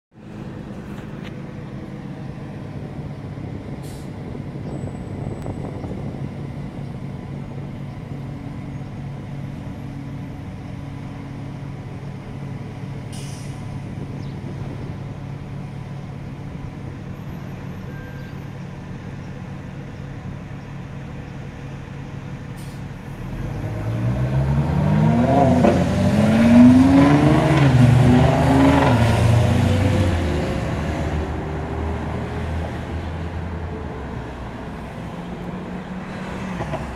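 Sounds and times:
engines idling: 0.2s - 23.9s
car accelerating hard: 23.2s - 36.9s.

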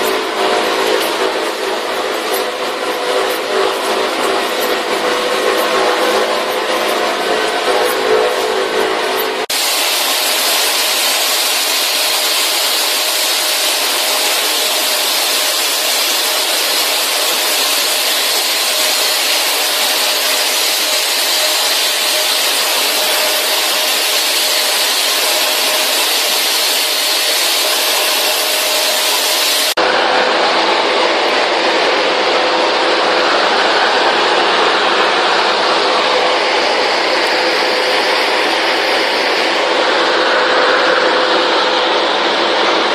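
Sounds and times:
high-pressure spray hissing: 9.1s - 29.8s.

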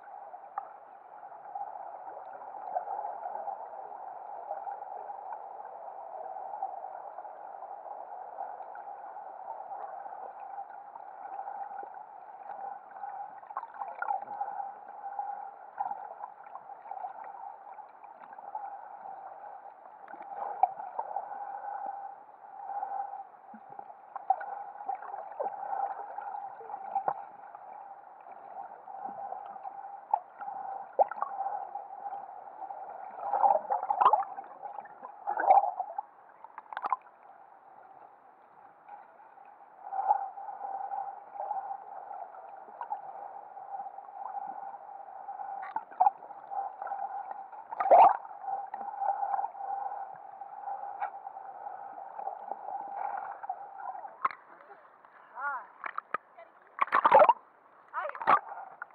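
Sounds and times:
underwater hum: 0.0s - 58.9s
bubbling gurgles: 56.8s - 57.4s.

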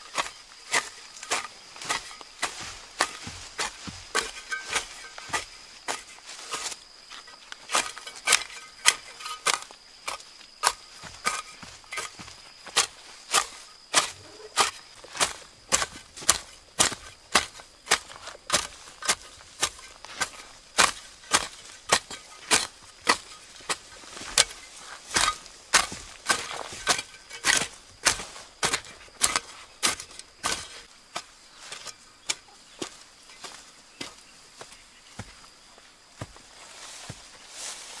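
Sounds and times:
hoe chopping into soil: 0.0s - 34.2s.

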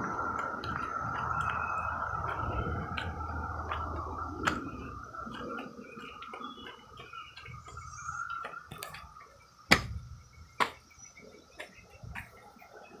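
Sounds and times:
cicadas droning: 0.0s - 13.0s
sharp knocks: 9.7s - 10.0s.

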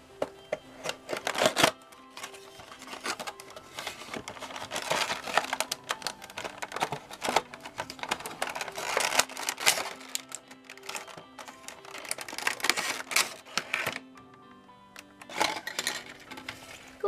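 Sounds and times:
soft background music: 0.0s - 17.0s
cardboard scraping and rustling: 0.8s - 14.0s.

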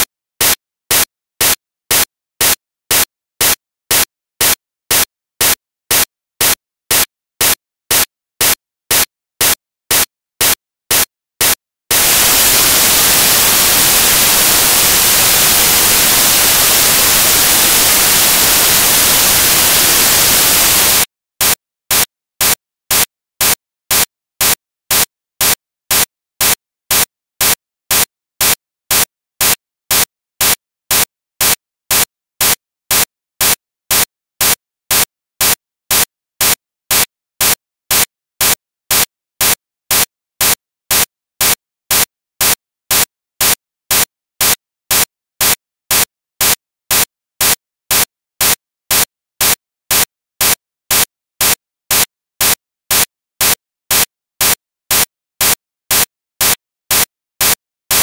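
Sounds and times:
bursts of static: 10.9s - 21.0s.

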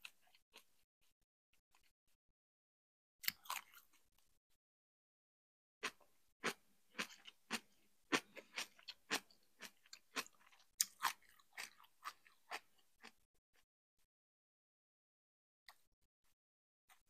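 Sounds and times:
chewing crunchy cabbage salad: 3.2s - 4.1s, 5.8s - 13.2s.

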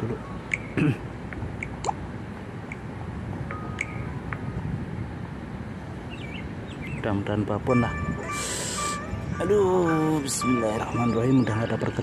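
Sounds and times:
low outdoor background noise: 0.0s - 12.0s
water drips and plinks: 1.6s - 2.0s.

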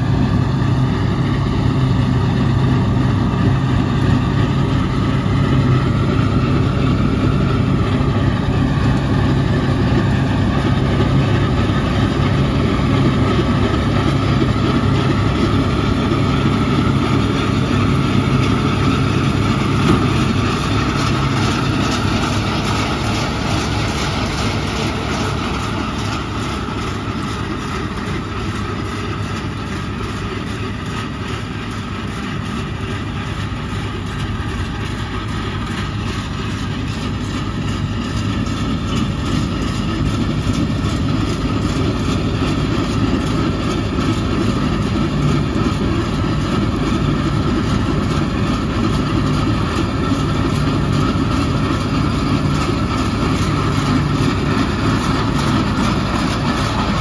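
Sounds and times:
diesel engine droning: 0.0s - 57.0s
threshing machinery running: 0.0s - 57.0s.

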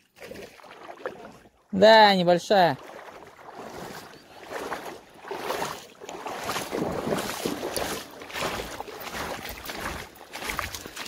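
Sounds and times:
fish splashing in water: 0.0s - 1.6s, 2.8s - 11.0s.

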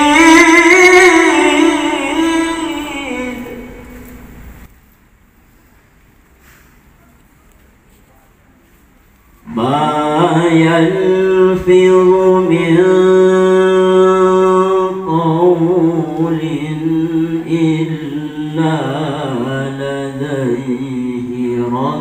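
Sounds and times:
man reciting melodically: 0.0s - 4.6s, 9.4s - 22.0s.

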